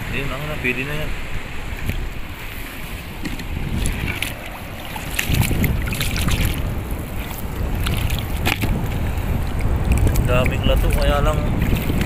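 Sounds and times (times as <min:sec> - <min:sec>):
shallow sea water sloshing: 0:00.0 - 0:12.0
wind rumbling on microphone: 0:00.0 - 0:12.0
small splashes and crackles: 0:03.2 - 0:12.0.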